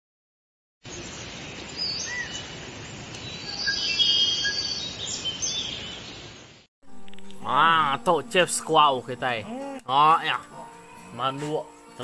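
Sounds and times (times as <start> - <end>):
birds chirping and whistling: 0.9 - 2.6, 3.2 - 6.4
outdoor background hiss: 0.9 - 12.0.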